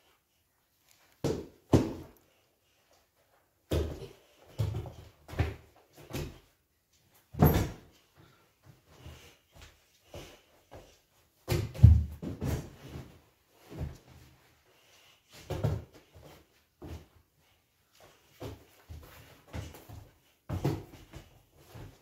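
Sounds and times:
child jumping and thumping: 1.2s - 2.2s, 3.7s - 6.5s, 7.3s - 8.0s, 8.6s - 14.3s, 15.3s - 17.2s, 18.2s - 22.0s.

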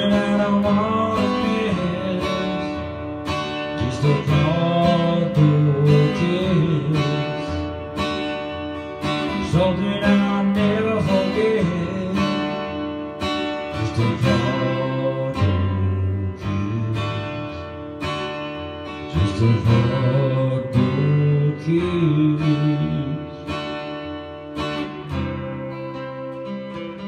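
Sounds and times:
man singing: 0.0s - 7.8s, 9.2s - 17.8s, 19.0s - 23.7s
acoustic guitar strumming: 0.0s - 27.0s.

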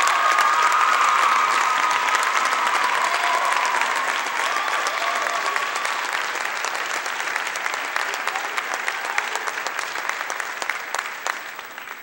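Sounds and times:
crowd applauding: 0.0s - 12.0s.

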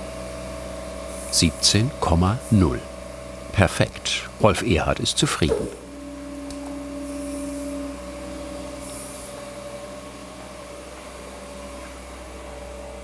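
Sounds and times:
machine motor hum: 3.0s - 13.0s.

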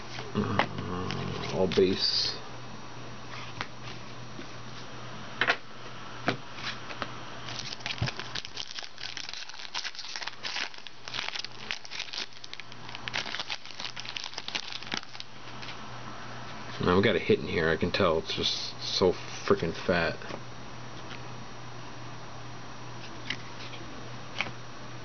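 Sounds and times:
wrapper crinkling and tearing: 7.5s - 15.3s.

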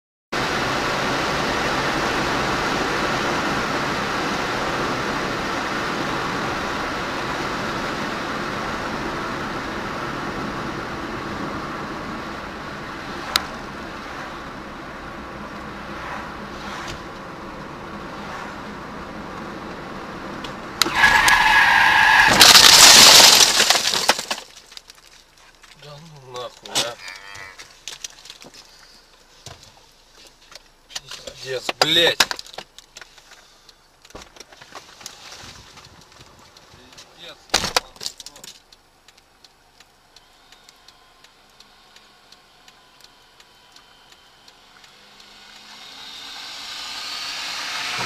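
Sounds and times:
car road and engine noise: 0.3s - 48.0s
loud crash on windshield: 22.1s - 24.7s.

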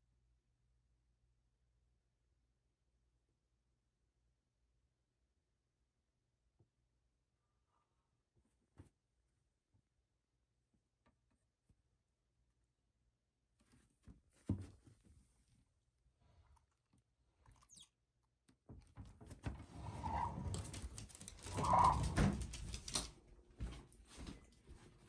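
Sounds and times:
door squeaking: 21.4s - 22.6s.

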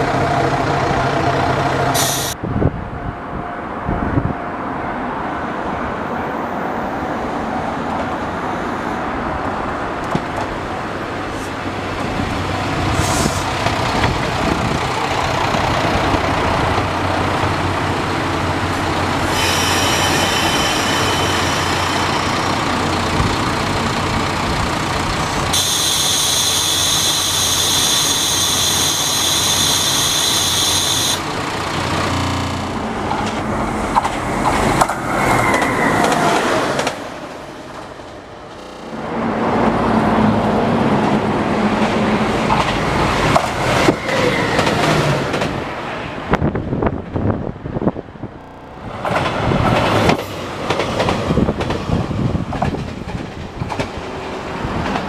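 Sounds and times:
train engine and wheel rumble: 0.0s - 55.0s
high metallic squeal: 19.3s - 22.7s.

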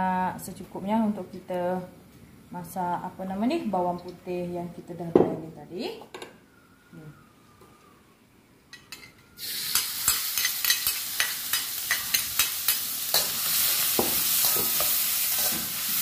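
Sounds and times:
garlic sizzling in hot oil: 9.4s - 16.0s.

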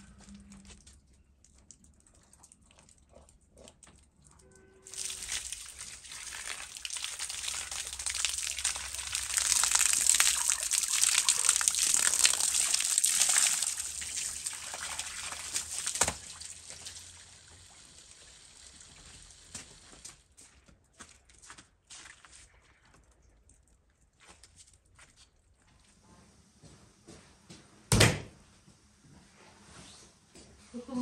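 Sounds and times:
hose water spraying and splashing: 4.9s - 20.4s.

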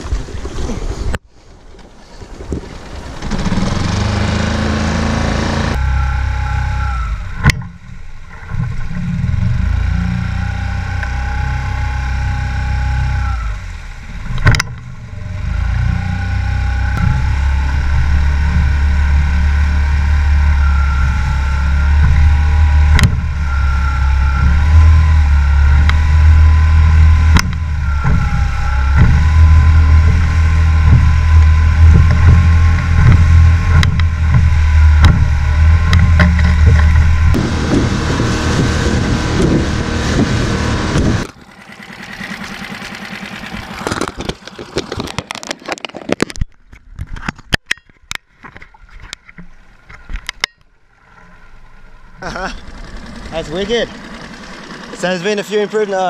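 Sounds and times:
outboard motor drone: 2.6s - 45.8s, 49.9s - 56.0s
sharp knocks: 30.8s - 38.0s.

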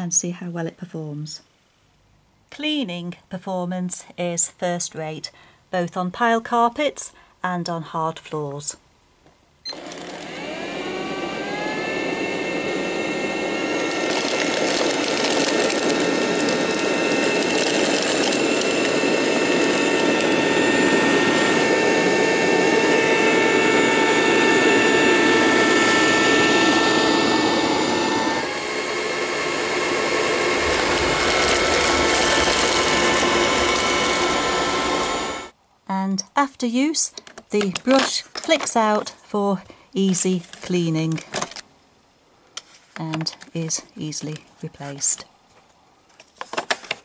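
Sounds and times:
robot vacuum cleaner whine: 9.7s - 35.6s
rushing suction noise: 10.3s - 35.5s.

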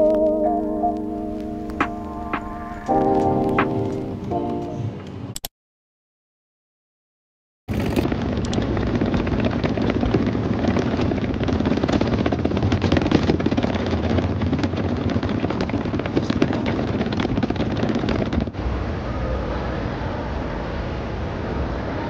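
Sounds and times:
suitcase wheels rattling over bricks: 7.7s - 18.6s.

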